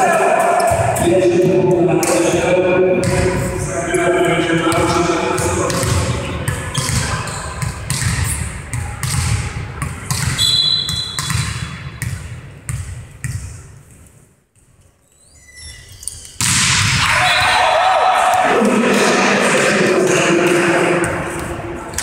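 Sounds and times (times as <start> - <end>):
volleyball bouncing on floor: 3.0 - 3.5, 4.7 - 13.6
short whistle: 10.4 - 11.2.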